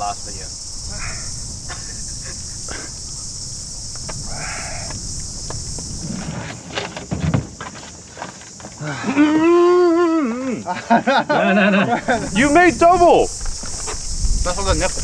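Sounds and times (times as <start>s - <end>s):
insects buzzing: 0.0s - 15.0s
person's wavering vocal cry: 8.8s - 10.7s.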